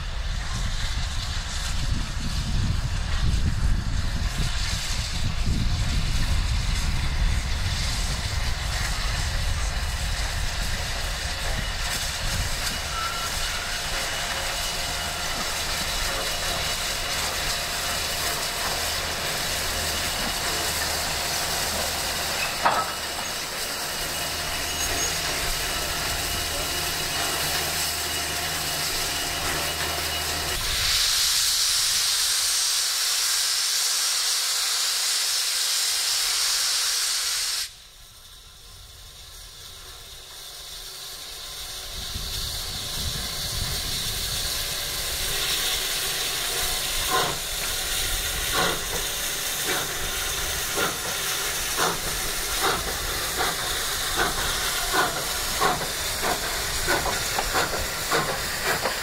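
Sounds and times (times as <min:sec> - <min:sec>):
steam locomotive hissing: 0:00.0 - 0:59.0
locomotive exhaust chuffs: 0:37.7 - 0:59.0.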